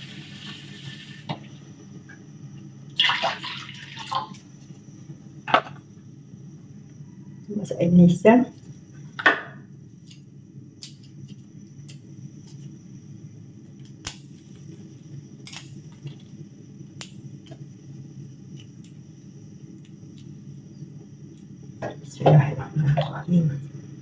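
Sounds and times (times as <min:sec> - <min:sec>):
steady low hum: 0:04.0 - 0:24.0.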